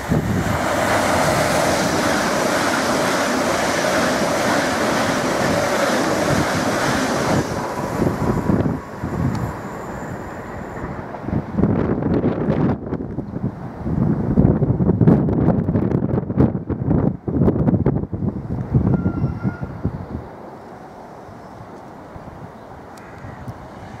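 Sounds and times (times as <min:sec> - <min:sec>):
wind buffeting microphone: 0:00.0 - 0:20.5
train passing at speed: 0:00.0 - 0:24.0.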